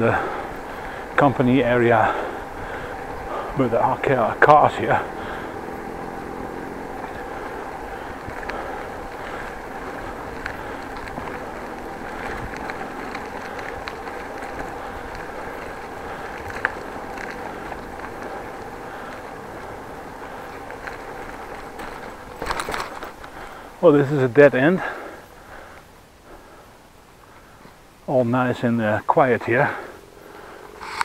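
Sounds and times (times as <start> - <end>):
bicycle rolling: 0.0 - 31.0
small rattles and clicks: 0.2 - 23.8
faint hum: 29.7 - 31.0.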